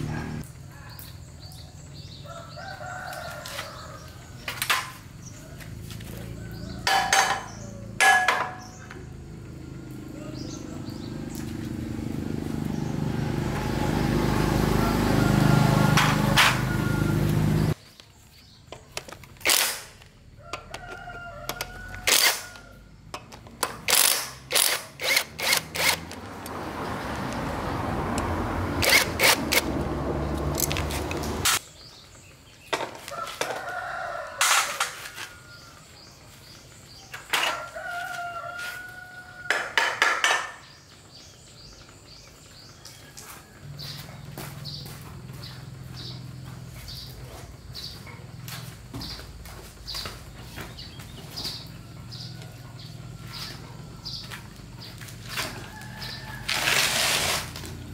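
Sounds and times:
rooster crowing: 0:02.0 - 0:04.3, 0:13.7 - 0:17.8, 0:20.4 - 0:23.0, 0:33.0 - 0:36.2, 0:37.4 - 0:39.9, 0:51.5 - 0:57.0
sharp clicks and knocks: 0:23.1 - 0:26.6.

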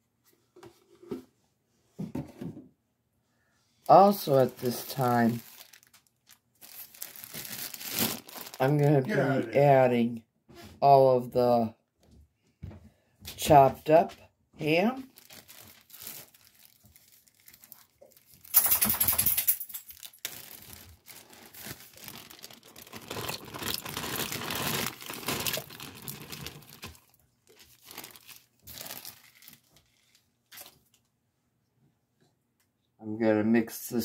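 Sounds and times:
plastic bag crinkling: 0:03.9 - 0:09.1, 0:15.0 - 0:30.8.

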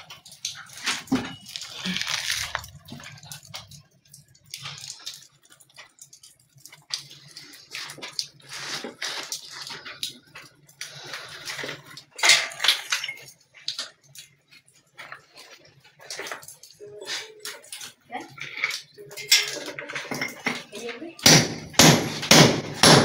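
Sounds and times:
rubble scraping and crumbling: 0:00.0 - 0:03.8, 0:07.3 - 0:14.1.

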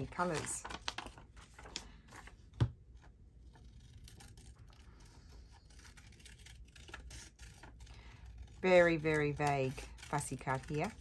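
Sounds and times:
scissors snipping paper: 0:03.5 - 0:11.0.

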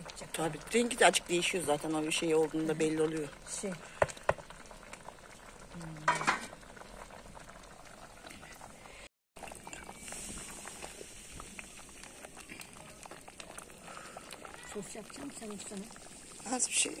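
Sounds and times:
wooden spoon stirring jam: 0:00.0 - 0:05.4, 0:09.4 - 0:17.0
jam boiling and popping in pot: 0:00.0 - 0:17.0.

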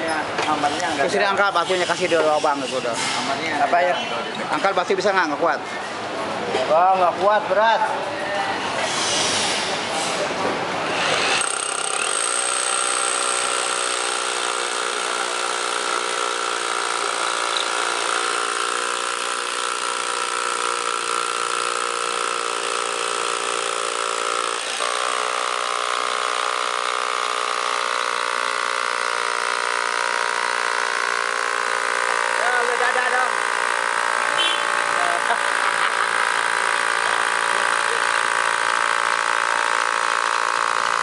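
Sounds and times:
rotary hammer drilling into masonry: 0:10.9 - 0:41.0.

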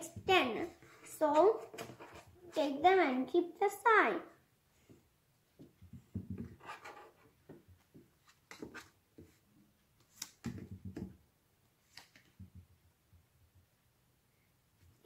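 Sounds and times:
playing cards flipped on table: 0:10.0 - 0:10.7, 0:11.9 - 0:12.4.

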